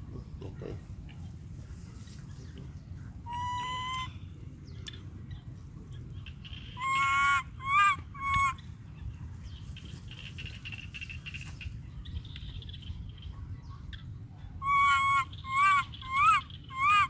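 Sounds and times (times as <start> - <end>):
monkey high cries: 14.6 - 17.0.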